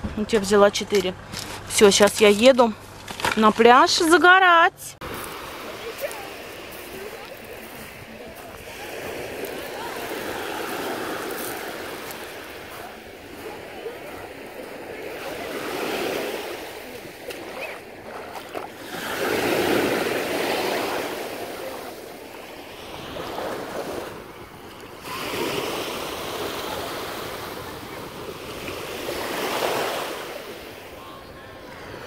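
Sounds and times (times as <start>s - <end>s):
waves washing over shingle: 5.0s - 32.0s.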